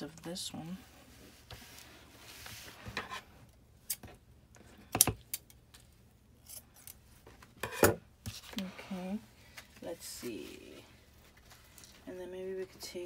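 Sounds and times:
light rustling of cord: 8.2 - 12.7.

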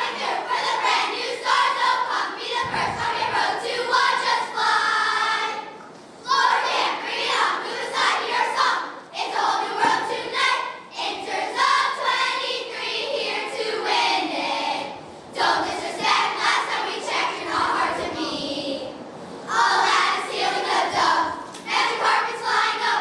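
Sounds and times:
girls chanting a cheer: 0.0 - 23.0.

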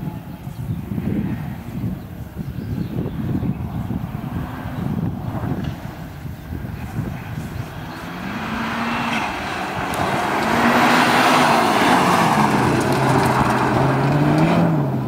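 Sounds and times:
car engine revving: 6.6 - 15.0.

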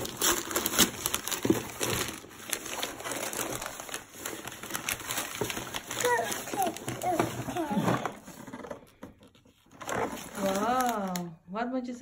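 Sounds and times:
gift wrapping paper crinkling: 0.0 - 11.4.

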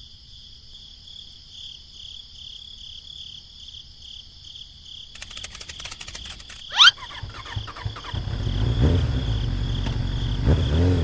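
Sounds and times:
crickets chirping: 0.0 - 11.0
fast rattle of clicks: 5.2 - 8.4.

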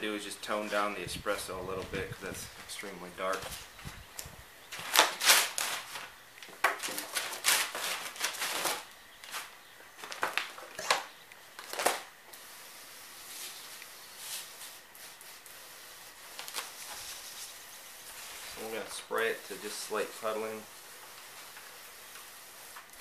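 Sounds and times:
rustling and clatter: 3.3 - 12.1
pump sprayer hissing: 6.8 - 23.0.

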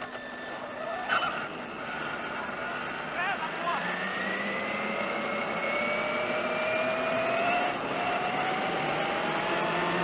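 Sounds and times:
toy truck electric motor whining: 0.0 - 2.8
tyres rolling on asphalt: 0.0 - 10.0.

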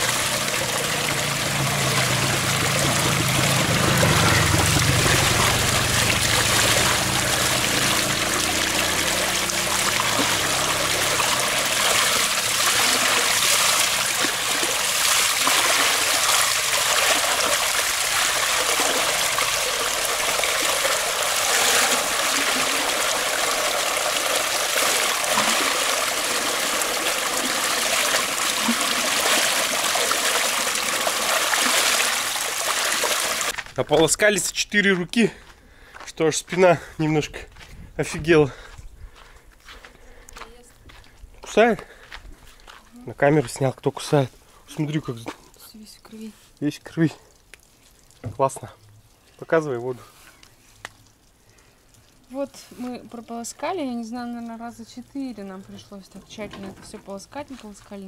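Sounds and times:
cloth bag rinsed by hand: 0.0 - 33.6
water pouring into metal basin: 0.0 - 33.6.

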